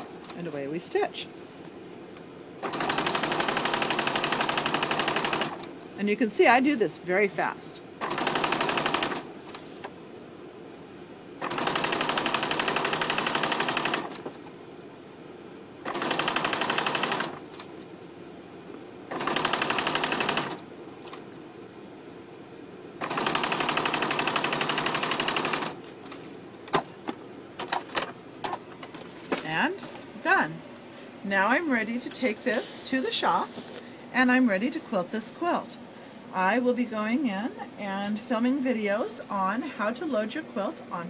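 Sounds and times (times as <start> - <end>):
sewing machine stitching fast: 2.6 - 5.7, 8.0 - 9.3, 11.4 - 14.2, 15.8 - 17.5, 19.1 - 20.6, 23.0 - 25.8.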